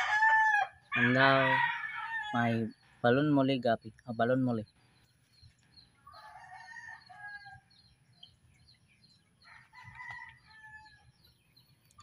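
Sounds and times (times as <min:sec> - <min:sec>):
faint rooster crowing: 0:00.0 - 0:02.6, 0:06.0 - 0:07.8, 0:09.4 - 0:11.2.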